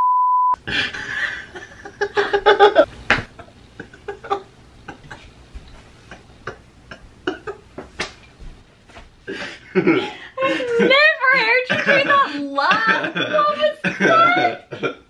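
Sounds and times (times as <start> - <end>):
person laughing oddly: 9.7 - 15.0.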